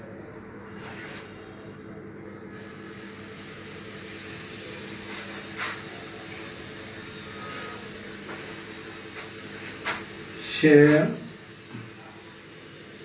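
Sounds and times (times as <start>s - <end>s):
room noise hum and hiss: 0.0s - 13.0s.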